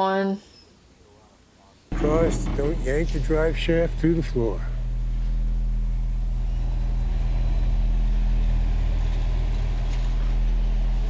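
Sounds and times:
truck engine idling: 1.9 - 11.0.

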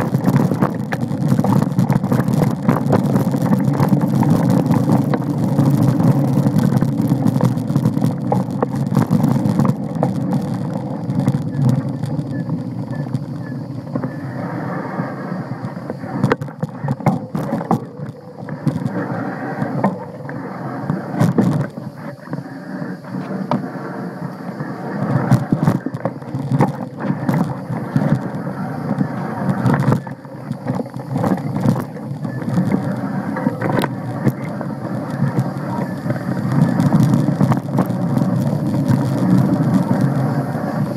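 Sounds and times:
bike knocking and rattling: 0.0 - 14.3, 15.4 - 40.9
bike tyres rumbling on dirt: 0.0 - 40.9
wind on microphone: 0.0 - 40.9
small clicks and knocks: 15.6 - 18.9.

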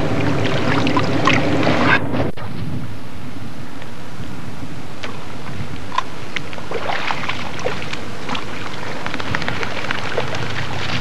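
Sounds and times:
wind-like outdoor hiss: 0.0 - 11.0
small water splashes: 5.9 - 11.0.

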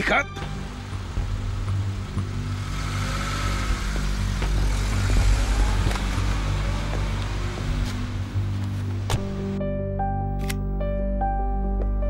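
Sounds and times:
car engine running: 0.5 - 9.6.

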